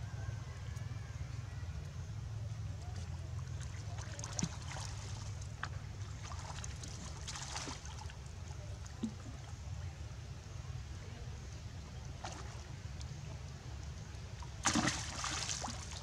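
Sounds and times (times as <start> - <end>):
monkeys splashing in water: 6.1 - 8.2, 14.5 - 16.0.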